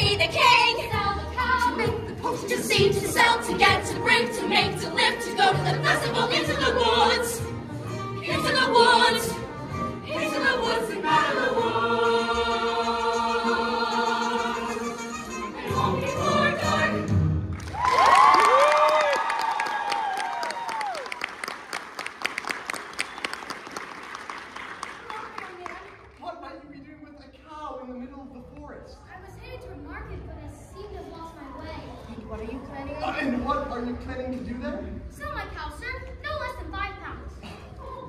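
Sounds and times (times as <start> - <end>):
group singing: 0.0 - 17.4.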